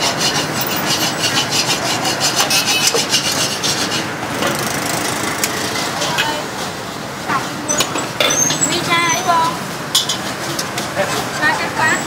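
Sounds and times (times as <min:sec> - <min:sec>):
metal spatula scraping steel wok: 0:00.0 - 0:04.6, 0:07.4 - 0:12.0.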